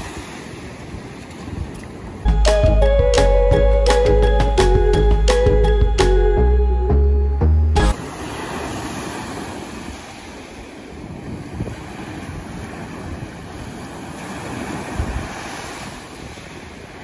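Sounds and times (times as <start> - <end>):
wind buffeting microphone: 0.0 - 2.3, 10.6 - 17.0
surf washing onto sandy beach: 7.9 - 17.0.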